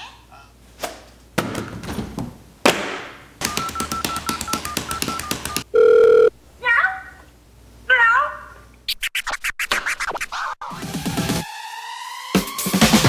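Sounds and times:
scattered knocks: 3.4s - 5.7s
short beeps: 3.6s - 6.3s.

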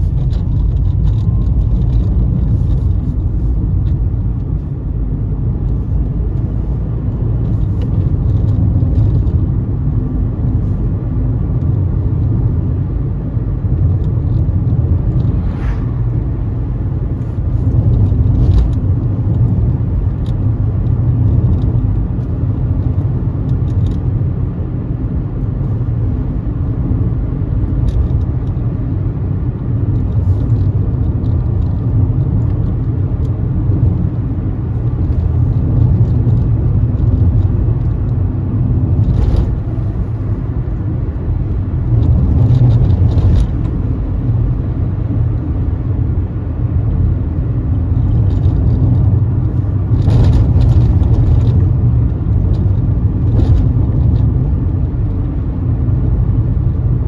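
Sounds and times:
car tyres and engine rumbling: 0.0s - 57.0s
oncoming car passing: 15.2s - 16.5s.

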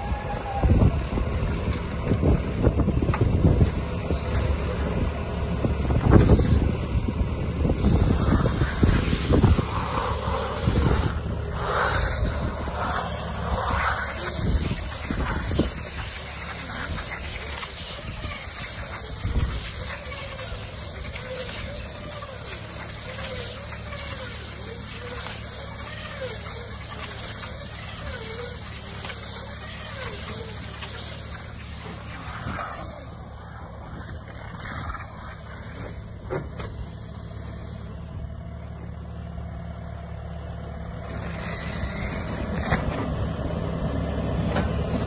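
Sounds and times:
tractor engine running: 0.0s - 45.0s
wind buffeting microphone: 0.2s - 22.4s
bale wrapper winding film: 8.2s - 33.2s.

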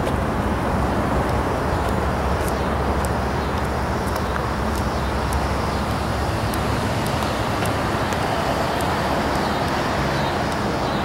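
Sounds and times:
faint light ticks: 1.2s - 9.9s.

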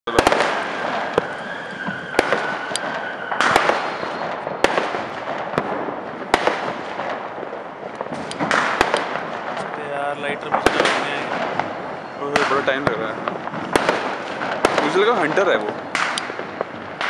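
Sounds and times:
firework whistle: 0.1s - 5.4s, 10.3s - 16.4s
fireworks bangs: 0.1s - 17.0s
fireworks crackling hiss: 0.1s - 17.0s.

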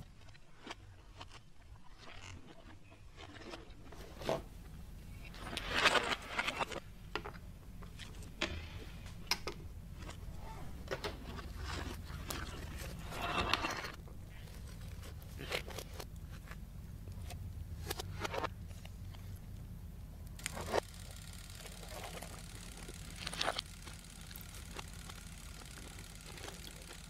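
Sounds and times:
steady low hum: 2.8s - 27.0s
small hard objects clicking: 20.3s - 27.0s.

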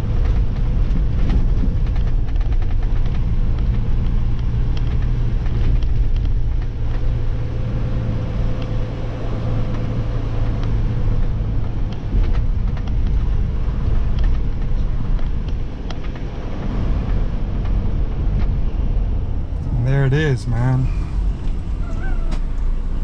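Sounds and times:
vehicle engine and tyres rumbling: 0.0s - 23.0s
small clicks and knocks: 14.1s - 16.3s.

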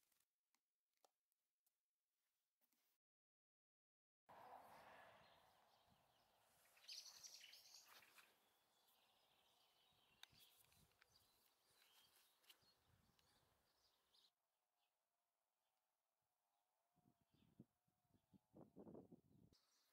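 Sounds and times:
birds chirping: 4.3s - 14.3s.

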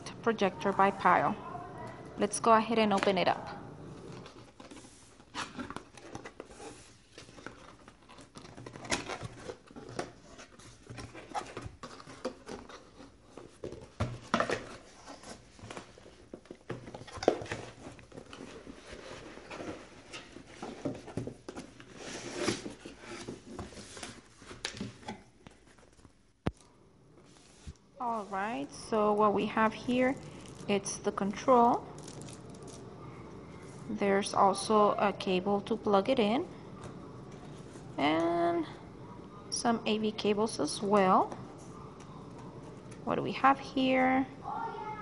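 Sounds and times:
foam packing scraping and rustling: 4.1s - 24.7s
cardboard box being unpacked: 4.1s - 26.0s.

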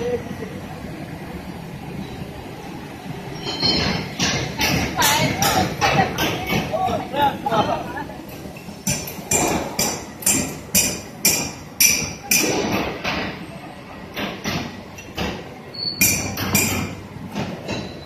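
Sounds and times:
sharp ringing knocks: 8.9s - 13.2s.

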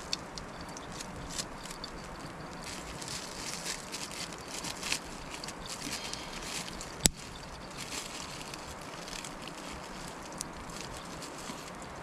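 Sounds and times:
wood fire crackling: 0.0s - 12.0s
plastic packet crinkling and tearing: 2.6s - 12.0s.

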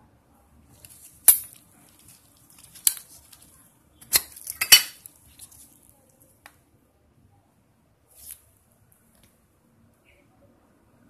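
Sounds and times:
metal lighter lid clinking: 4.1s - 5.0s.

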